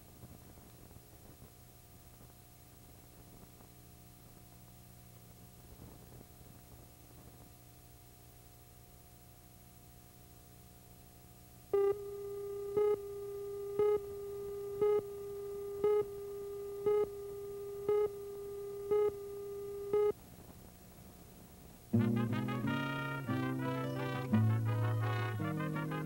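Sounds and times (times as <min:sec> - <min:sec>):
short beeps: 0:11.8 - 0:20.2
brass-led music: 0:22.0 - 0:26.0.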